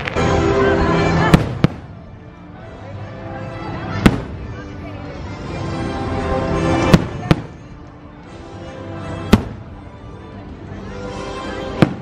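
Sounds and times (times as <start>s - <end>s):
music playing: 0.0s - 12.0s
fireworks bangs: 1.2s - 2.0s, 9.3s - 9.8s, 11.7s - 12.0s.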